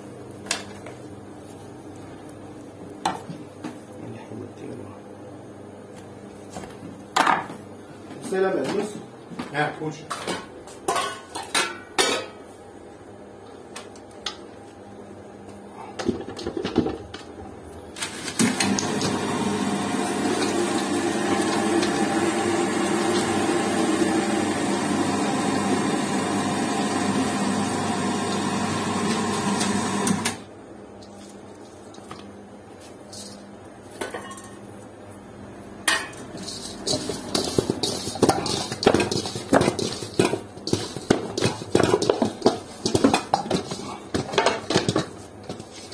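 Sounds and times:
electric meat grinder running: 18.1 - 30.4.

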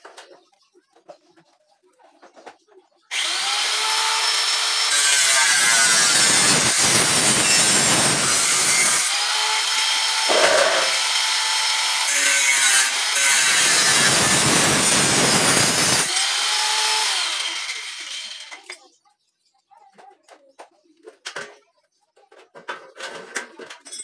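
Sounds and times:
angle grinder cutting steel: 3.1 - 18.7.

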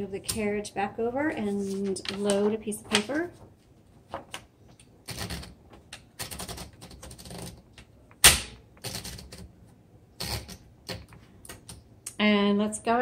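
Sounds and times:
paper rustling: 1.4 - 7.6.

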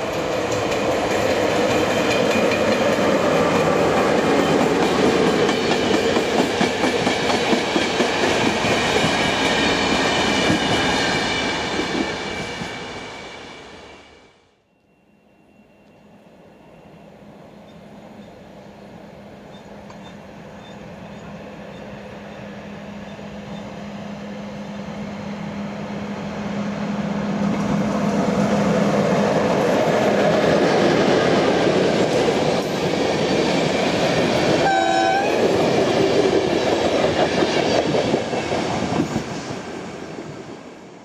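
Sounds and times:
train wheels rumbling on rails: 0.0 - 14.2, 17.8 - 41.0
train horn blast: 34.6 - 35.5.

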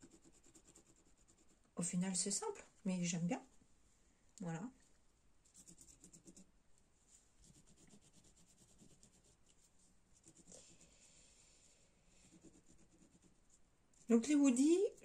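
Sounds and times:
pencil scratching on burlap: 0.0 - 1.7, 5.5 - 6.5, 7.4 - 11.0, 12.2 - 13.4.

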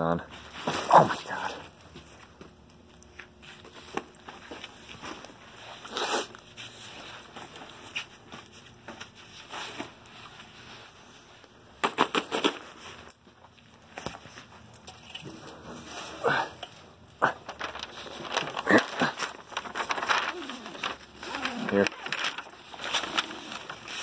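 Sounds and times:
nylon backpack rustling: 17.4 - 24.0.

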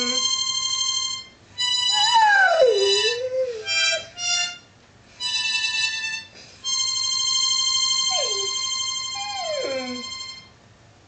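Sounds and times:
dog howling: 0.0 - 0.3, 1.9 - 4.1, 8.0 - 10.1
harmonica chords: 0.0 - 10.5.

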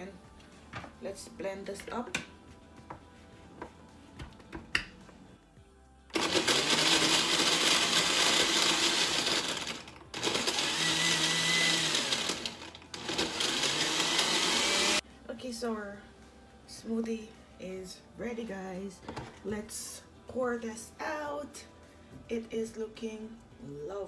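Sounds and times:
blender running with ice: 6.1 - 15.0.

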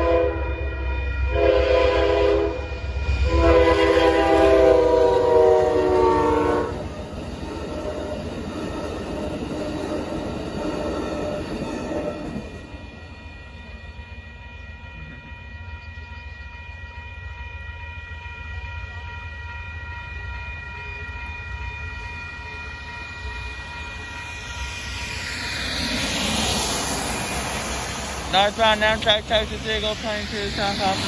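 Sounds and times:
railroad crossing bell ringing: 6.6 - 31.0.

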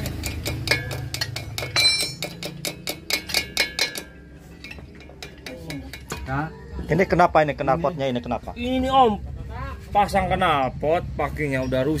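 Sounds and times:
wrench clicking on bolts: 0.0 - 6.1.

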